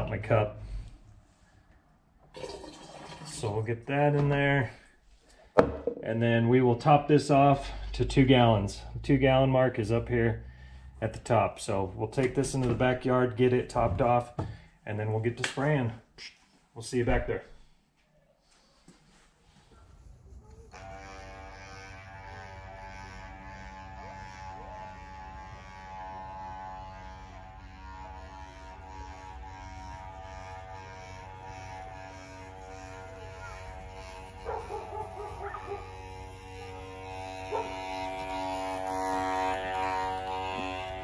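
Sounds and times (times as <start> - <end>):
small motor buzzing hum: 20.5 - 41.0
dog barking: 34.4 - 36.0, 37.5 - 37.8.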